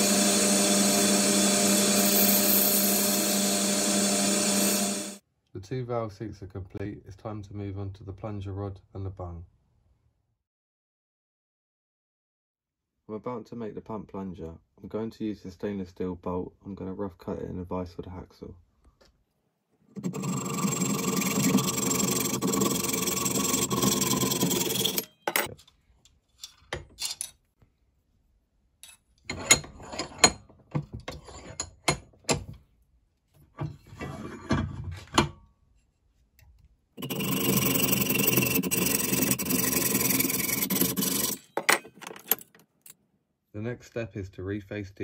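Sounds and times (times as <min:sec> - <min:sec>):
hacksaw cutting metal bolt: 0:20.0 - 0:25.5, 0:37.0 - 0:42.6.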